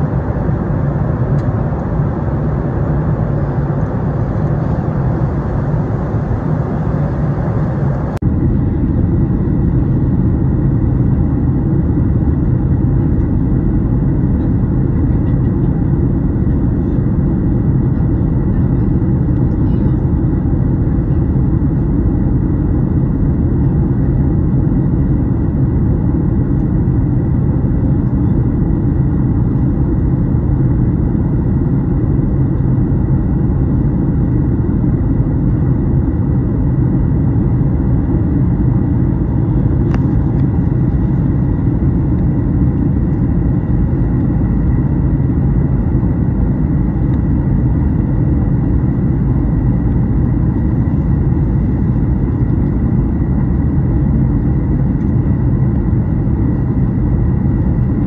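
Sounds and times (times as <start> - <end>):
faint high whine: 0.0 - 8.2
airplane cabin airflow and engine drone: 0.0 - 58.0.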